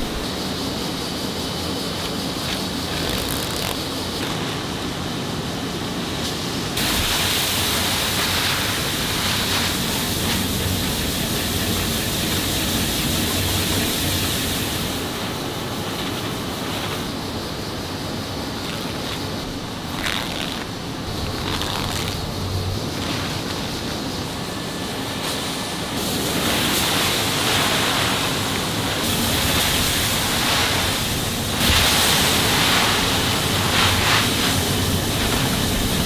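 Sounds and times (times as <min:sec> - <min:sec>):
factory machinery hum: 0:00.0 - 0:36.0
paper sacks rustling: 0:02.4 - 0:04.8, 0:15.0 - 0:24.1, 0:27.2 - 0:36.0.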